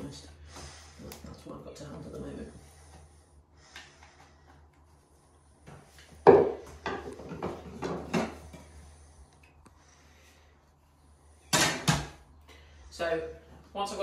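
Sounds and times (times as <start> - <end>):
scrapes and knocks: 5.6 - 8.8.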